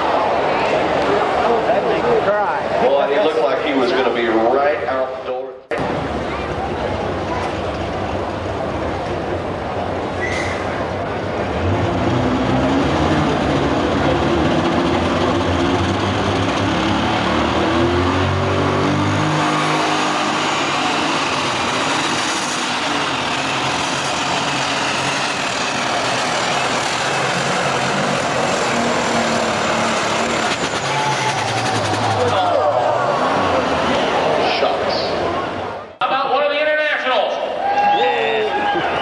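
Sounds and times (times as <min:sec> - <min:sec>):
diesel tractor engine under load: 0:05.7 - 0:34.4.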